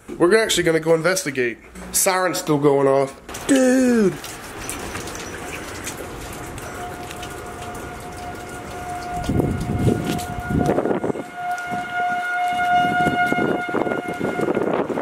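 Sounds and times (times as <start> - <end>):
distant warning siren: 4.2 - 15.0.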